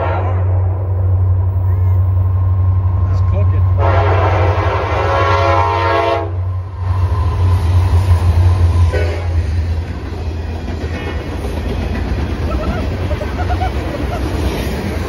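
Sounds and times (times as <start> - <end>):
train horn: 0.0 - 0.8, 3.8 - 6.5, 8.9 - 9.6
locomotive engine rumble: 0.0 - 15.0
train cars rolling past: 0.0 - 15.0.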